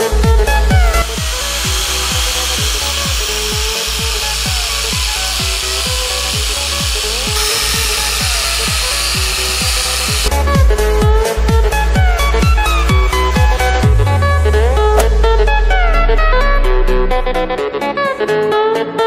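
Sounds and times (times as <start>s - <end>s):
background music with beat: 0.0s - 19.0s
wire brush grinder scraping rust: 0.8s - 10.3s.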